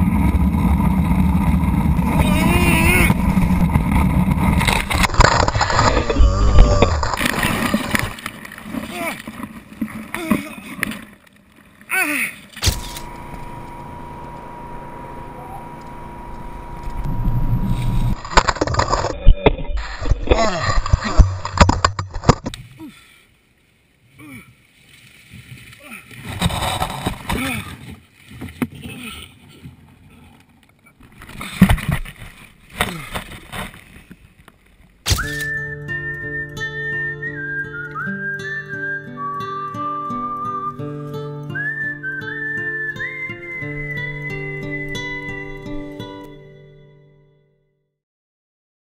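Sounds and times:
man's short cry: 2.2s - 3.1s
car engine running with whine: 12.6s - 18.7s
guitar: 12.6s - 22.0s, 35.1s - 47.7s
handling noise on microphone: 12.6s - 22.6s
whistled tune: 35.1s - 46.2s.

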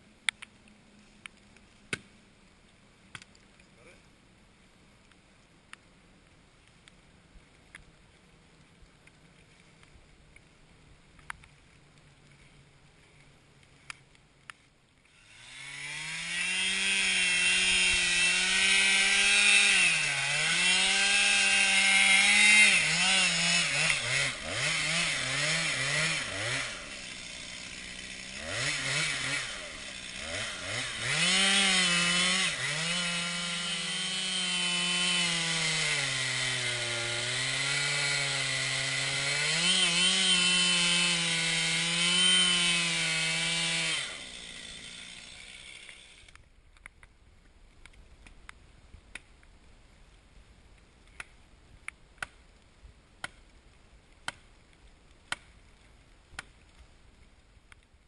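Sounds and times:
chainsaw cutting wood: 15.1s - 46.4s.

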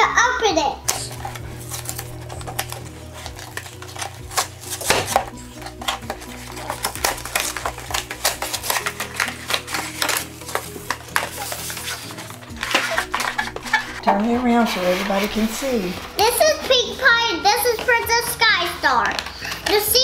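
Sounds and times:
cardboard tearing and crinkling: 0.9s - 16.6s.

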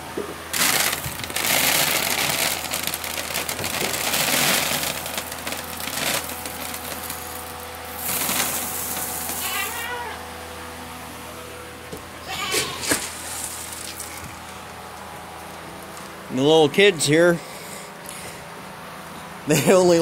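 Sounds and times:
feed pellets pouring into pan: 0.5s - 9.8s.

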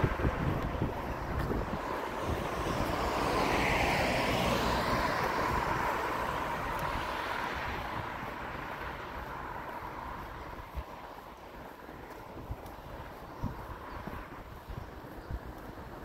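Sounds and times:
vehicle passing by: 0.0s - 10.9s.

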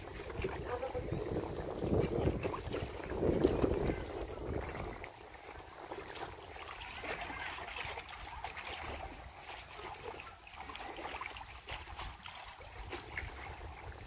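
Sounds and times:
wind rumbling on microphone: 0.0s - 6.8s, 11.8s - 14.0s
small waves lapping against stone wall: 0.0s - 14.0s.

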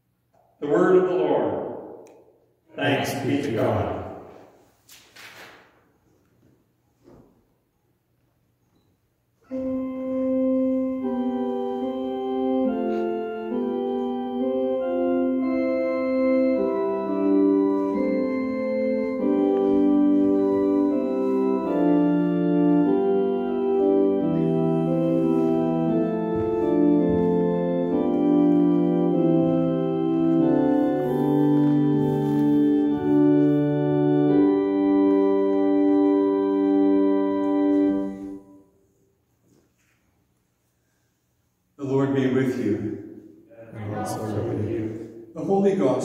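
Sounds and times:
church organ chords: 0.0s - 4.6s, 9.4s - 39.0s.

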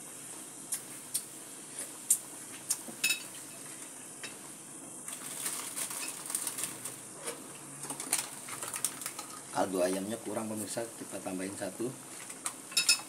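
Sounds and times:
pot boiling and bubbling: 0.0s - 13.0s
utensil clinking on metal pot: 12.7s - 13.0s.

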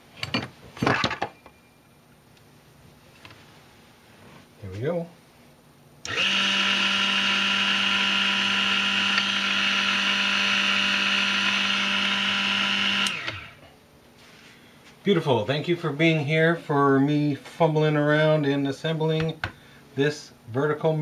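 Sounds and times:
milling machine motor whine: 6.1s - 13.6s.

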